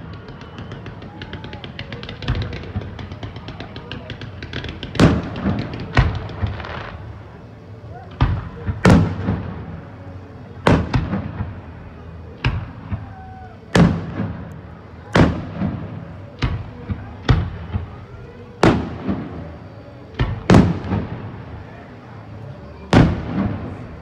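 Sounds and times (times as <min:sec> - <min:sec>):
fireworks bursting with bangs: 0:00.0 - 0:24.0.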